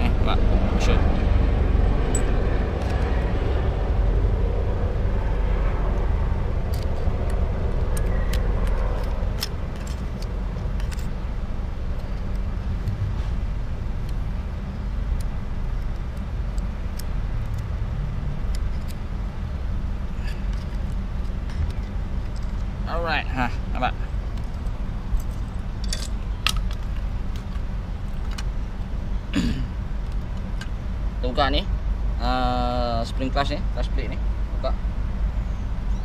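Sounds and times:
low engine rumble: 0.0s - 36.0s
hand tool metallic clicks: 6.7s - 11.2s, 24.4s - 27.6s.

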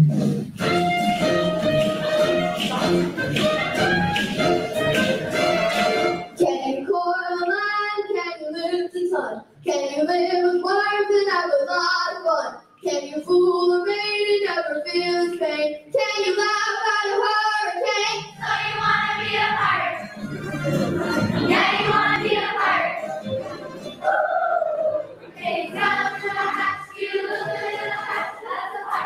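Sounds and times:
low musical accompaniment: 0.0s - 7.7s, 13.7s - 29.0s
children's choir singing: 5.2s - 8.1s, 12.9s - 29.0s.

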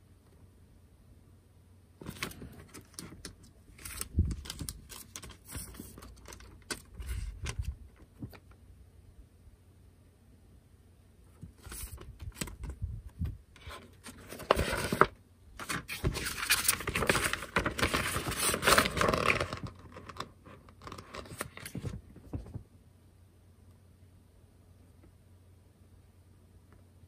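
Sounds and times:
paper rustling and crinkling: 2.0s - 8.4s, 11.4s - 22.6s.

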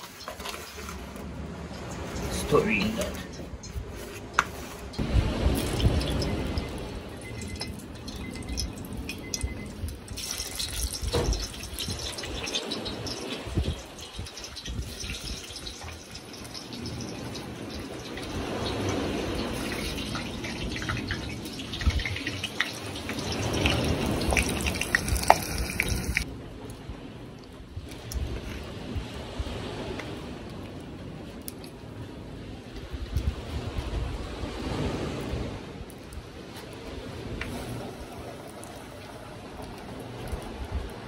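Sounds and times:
hot oil sizzling and crackling: 3.6s - 26.3s, 37.4s - 40.4s.

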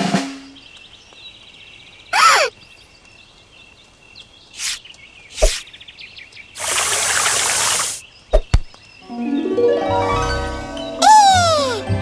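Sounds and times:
insects and birds chirping: 0.0s - 11.0s
garden hose spraying water: 4.6s - 5.6s, 6.6s - 8.0s.

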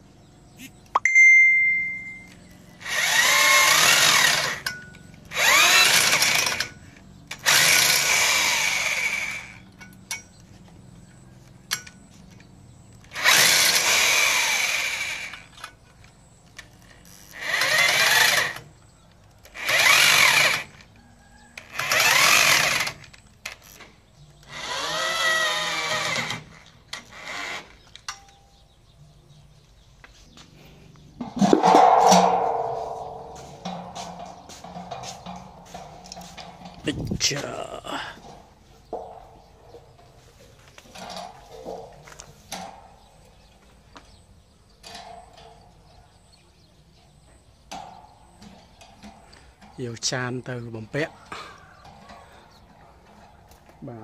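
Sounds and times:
electric drill bursts: 2.8s - 4.7s, 5.3s - 6.7s, 7.4s - 9.6s, 13.1s - 15.5s, 17.3s - 18.6s, 19.5s - 20.7s, 21.7s - 23.0s.

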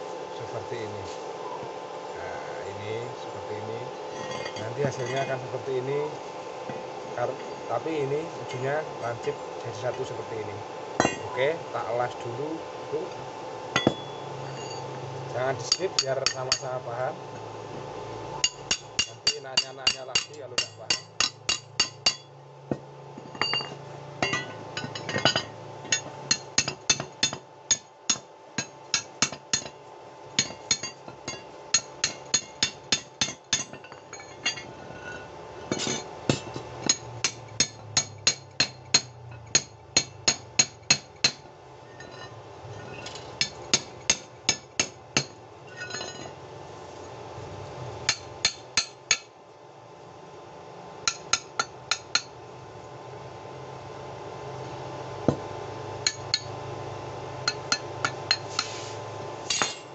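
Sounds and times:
low steady hum: 0.0s - 59.9s
hammer striking steel: 13.8s - 14.8s, 18.4s - 22.3s, 23.4s - 29.8s, 30.4s - 34.7s, 35.7s - 41.4s.

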